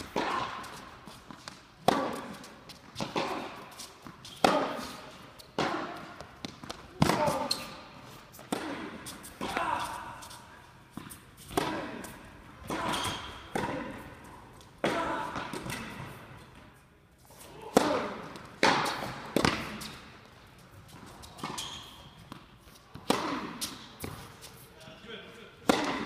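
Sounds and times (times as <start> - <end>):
rackets striking tennis ball: 0.0 - 16.8, 17.4 - 24.6, 25.6 - 26.0
ball bouncing on court: 5.5 - 7.7, 17.8 - 19.9.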